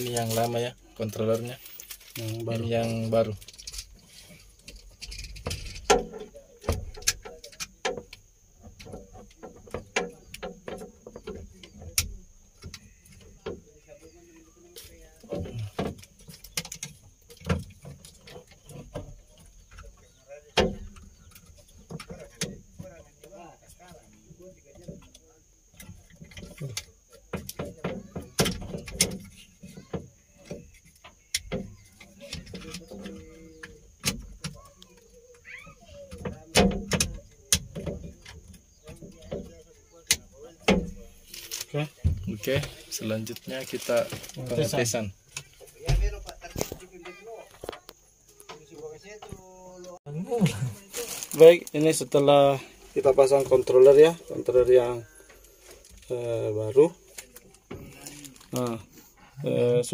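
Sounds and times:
metal housing clicks and knocks: 0:04.6 - 0:13.6.

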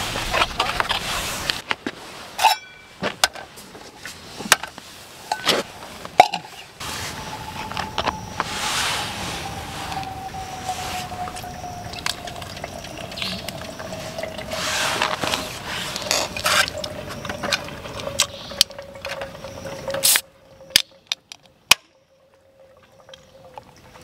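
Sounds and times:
kettle singing tone: 0:02.4 - 0:03.0, 0:06.2 - 0:23.6.

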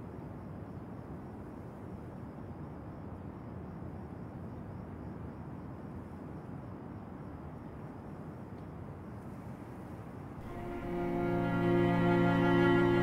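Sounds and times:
city street ambience: 0:00.0 - 0:13.0.

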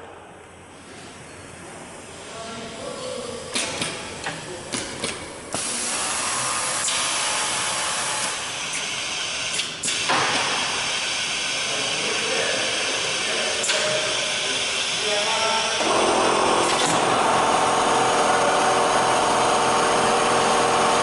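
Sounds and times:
sharp pneumatic clacks: 0:03.5 - 0:11.6, 0:13.6 - 0:15.0, 0:15.8 - 0:17.2.

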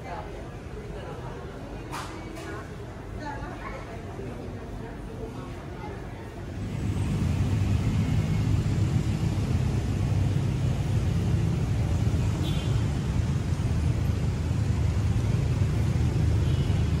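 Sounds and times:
street traffic rumble: 0:00.0 - 0:17.0
motorcycles and cars passing: 0:06.4 - 0:17.0.

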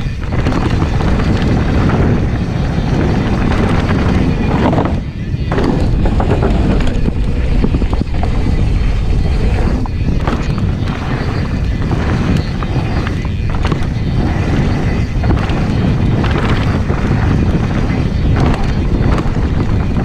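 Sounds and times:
bike clicks and knocks: 0:00.0 - 0:20.0
bike tyre noise on gravel: 0:00.0 - 0:20.0
wind rumble on microphone: 0:00.0 - 0:20.0.

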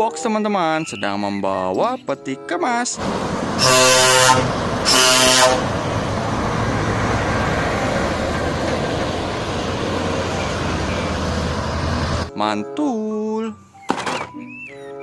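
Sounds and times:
lorries passing: 0:02.9 - 0:12.3
truck horn blasts: 0:03.6 - 0:05.8.

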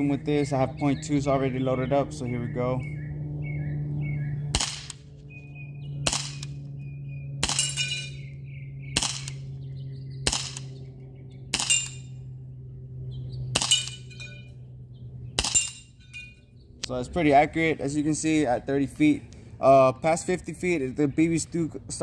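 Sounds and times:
steady low hum: 0:00.0 - 0:22.0
airsoft pistol pops: 0:04.6 - 0:05.0, 0:06.1 - 0:06.6, 0:09.0 - 0:09.4, 0:10.3 - 0:10.8.

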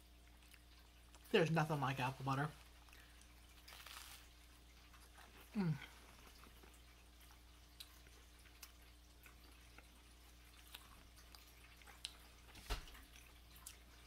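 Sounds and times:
low steady hum: 0:00.0 - 0:14.0
mouth clicks chewing toast: 0:02.6 - 0:14.0.

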